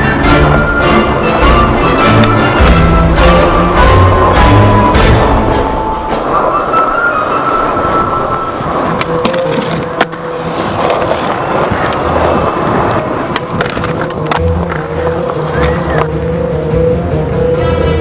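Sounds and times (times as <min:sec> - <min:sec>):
skateboard wheels rolling on concrete: 0:00.0 - 0:17.5
skateboard scraping concrete ledge: 0:06.2 - 0:16.1.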